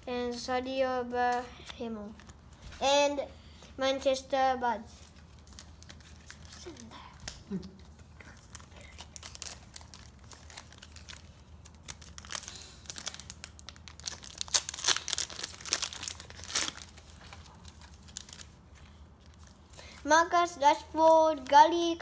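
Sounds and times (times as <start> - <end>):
foil packet tearing and crinkling: 8.4 - 18.6.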